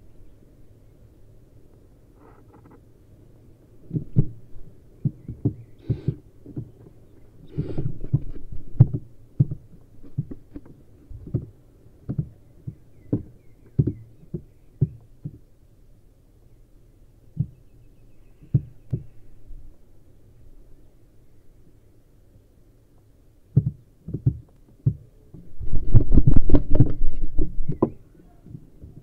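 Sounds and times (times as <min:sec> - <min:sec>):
dull thumps in wooden box: 0:03.9 - 0:04.4, 0:05.0 - 0:07.0, 0:07.6 - 0:15.4, 0:18.4 - 0:19.1, 0:23.6 - 0:29.0.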